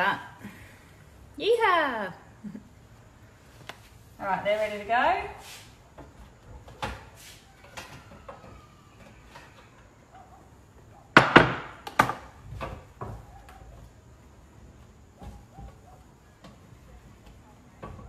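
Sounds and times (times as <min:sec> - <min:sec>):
sharp knocks: 0:11.2 - 0:12.2.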